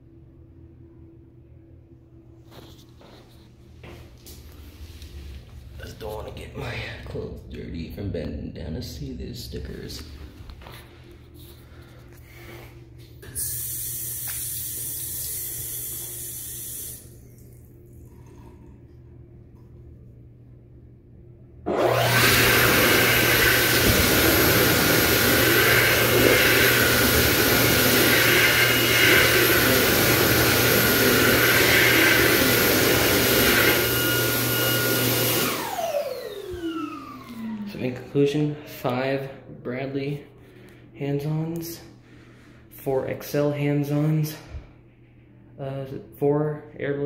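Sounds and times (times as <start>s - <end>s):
hand dryer whine: 8.8s - 17.3s, 21.6s - 38.6s.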